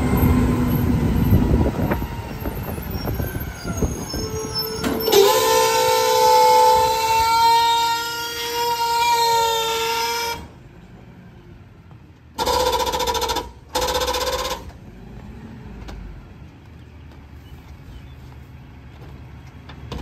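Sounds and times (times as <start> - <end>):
garbage truck high pitched tone: 0.0 - 10.6, 12.4 - 14.7.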